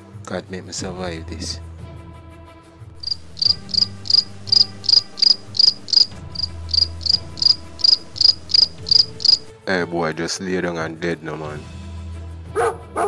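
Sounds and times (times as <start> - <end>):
cricket chirping: 3.0 - 9.5.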